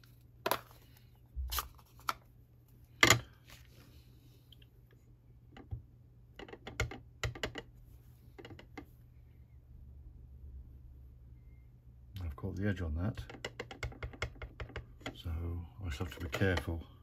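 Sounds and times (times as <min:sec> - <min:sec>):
plastic clicks and knocks: 0:05.5 - 0:07.7, 0:08.3 - 0:08.9, 0:13.1 - 0:15.2.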